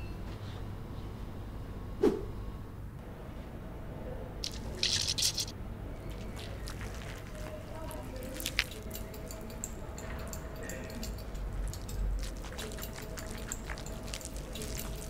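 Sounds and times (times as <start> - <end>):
spray bottle spritzing: 4.4 - 5.5
wet hands rubbing together: 4.4 - 5.5, 6.1 - 8.9, 11.7 - 15.0.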